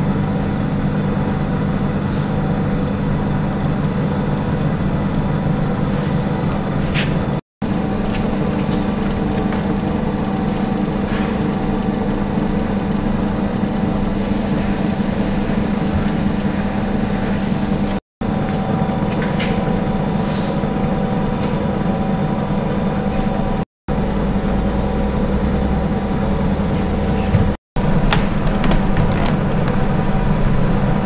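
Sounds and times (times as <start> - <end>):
machinery hum: 0.0 - 31.0.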